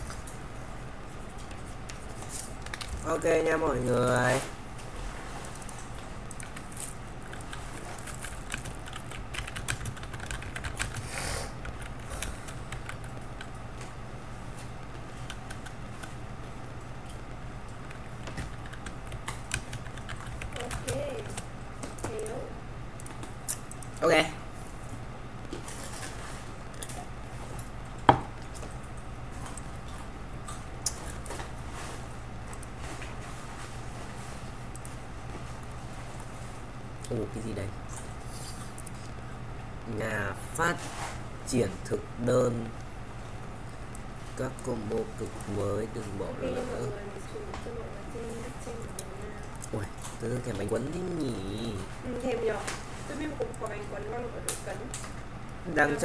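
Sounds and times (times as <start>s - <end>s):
steady low hum: 0.0s - 56.0s
keyboard keys clicking: 7.2s - 11.0s, 17.8s - 21.5s.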